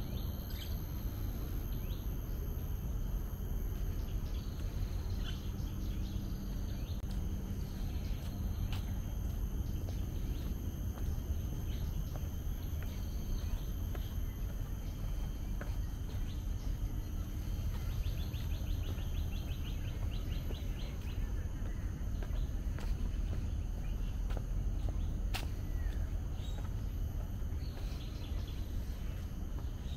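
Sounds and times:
rapid trill of high chirps: 0.0s - 22.7s
high insect drone: 0.0s - 29.9s.

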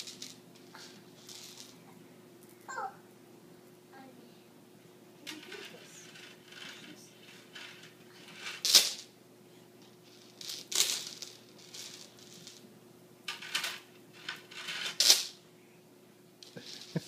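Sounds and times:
plastic beads clattering on wood: 0.0s - 1.8s, 5.2s - 9.1s, 9.8s - 12.6s, 13.3s - 15.4s, 16.4s - 17.0s.

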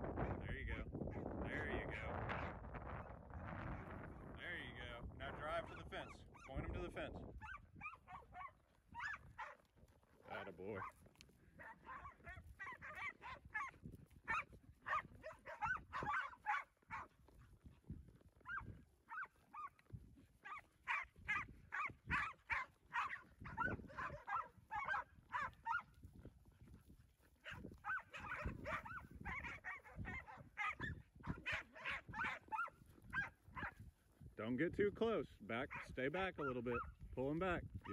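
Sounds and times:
dog barking: 7.4s - 9.6s, 10.7s - 11.0s, 11.6s - 17.2s, 18.4s - 19.8s, 20.4s - 25.9s, 27.4s - 33.8s, 35.7s - 35.9s, 36.5s - 37.0s.

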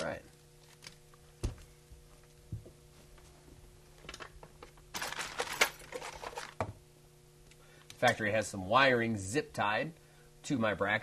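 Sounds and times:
rattling and rustling: 4.9s - 6.6s.

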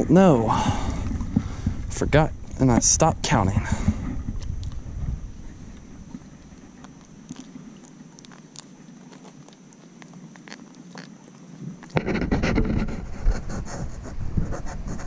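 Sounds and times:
rustling and knocking on microphone: 11.9s - 13.5s.

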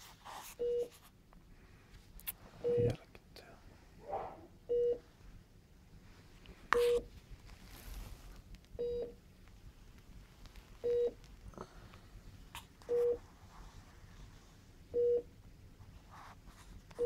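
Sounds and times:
patient monitor beeping: 0.6s - 0.9s, 2.6s - 3.0s, 4.7s - 5.0s, 6.8s - 7.1s, 8.8s - 9.2s, 10.8s - 11.2s, 12.9s - 13.2s, 14.9s - 15.3s
faint rustling: 6.0s - 8.7s, 9.4s - 14.7s.

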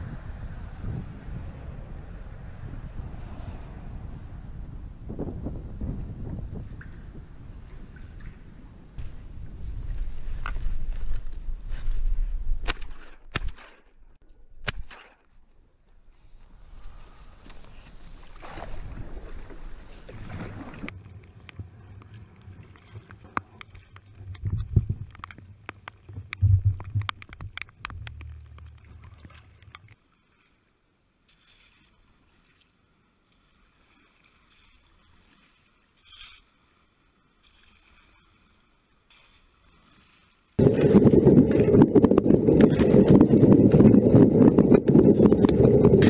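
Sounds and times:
paddle strokes in water: 16.1s - 46.0s.

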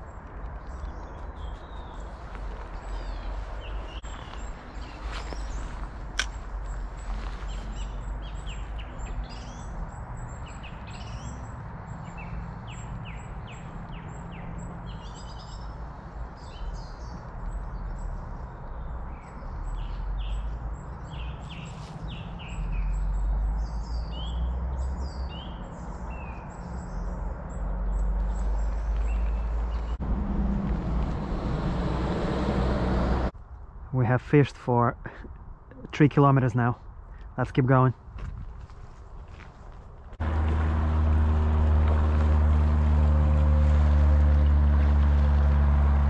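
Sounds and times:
small songbirds chirping: 0.0s - 32.4s.

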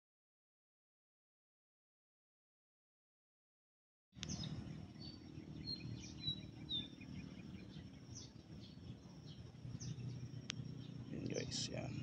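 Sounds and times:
small bird chirping: 4.2s - 12.0s
steady low rumble: 4.2s - 12.0s.

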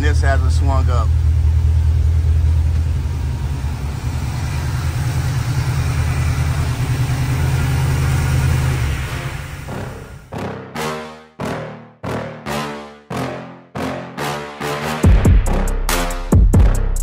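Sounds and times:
car engine idling: 0.0s - 10.3s.

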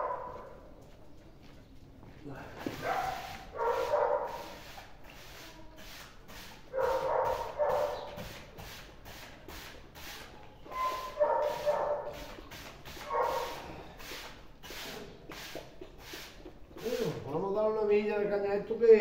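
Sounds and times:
broom sweeping the floor: 2.5s - 17.2s.

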